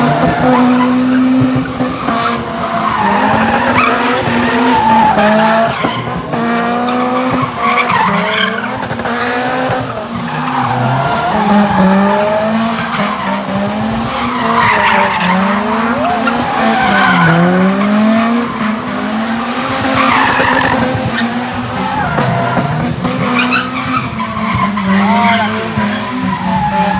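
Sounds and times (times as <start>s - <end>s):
car engine revving: 0.0s - 26.9s
tyres screeching: 9.7s - 19.0s.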